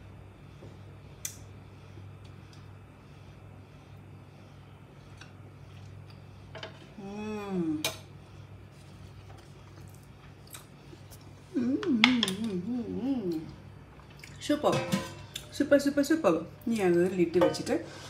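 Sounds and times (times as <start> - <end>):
woman humming mmm: 11.5 - 13.6.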